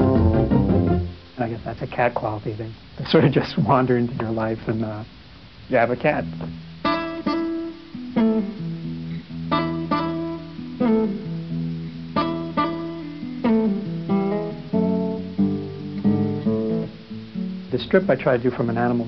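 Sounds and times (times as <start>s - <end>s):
acoustic guitar strumming chords: 0.0s - 1.6s, 6.2s - 19.0s.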